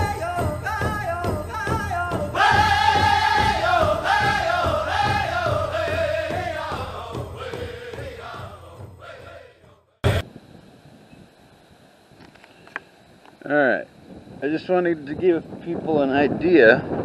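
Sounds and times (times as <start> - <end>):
person singing over a beat: 0.0 - 10.2.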